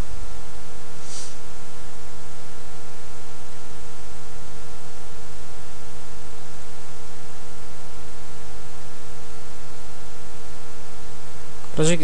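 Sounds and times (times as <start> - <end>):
electrical hum: 0.0 - 12.0
steady hiss: 0.9 - 1.8.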